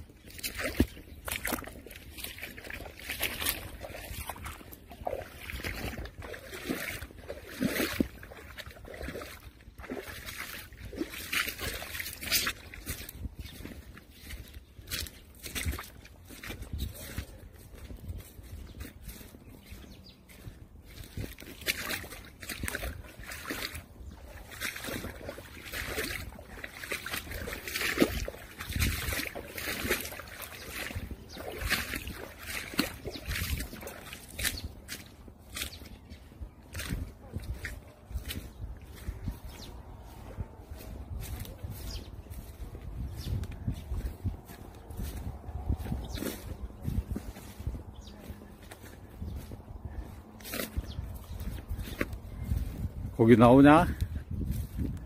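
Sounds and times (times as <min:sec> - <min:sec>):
footsteps through grass: 0:00.0 - 0:55.0
rustling grass: 0:25.8 - 0:55.0.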